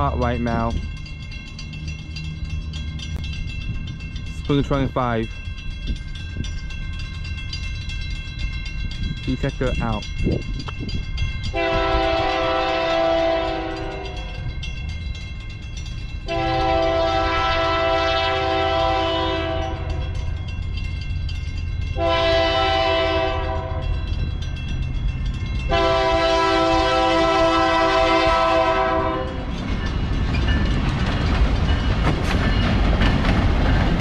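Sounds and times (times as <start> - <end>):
locomotive engine rumble: 0.0 - 34.0
train horn blasts: 11.5 - 14.4, 16.2 - 20.1, 22.0 - 24.0, 25.7 - 29.5.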